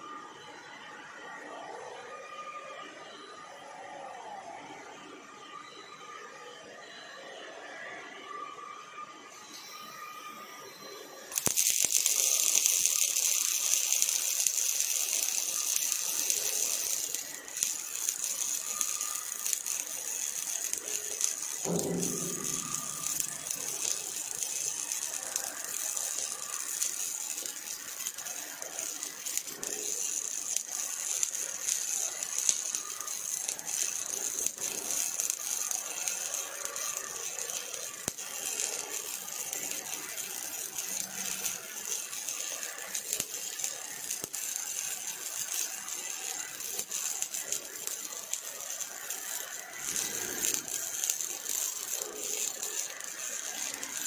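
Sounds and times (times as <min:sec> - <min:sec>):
welding arc crackling and hissing: 0:10.9 - 0:54.0.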